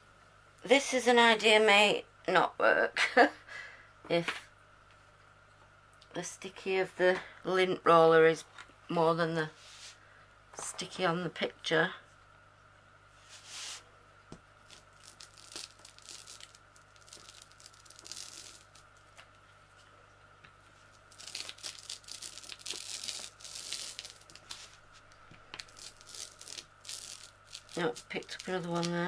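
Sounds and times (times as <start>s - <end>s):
lint roller crackly peeling: 14.7s - 19.3s, 20.8s - 29.0s.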